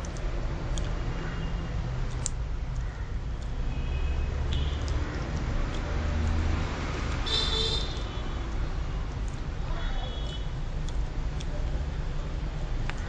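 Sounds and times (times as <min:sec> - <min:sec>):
road traffic noise: 0:00.0 - 0:13.0
motor vehicle passing: 0:04.2 - 0:08.9.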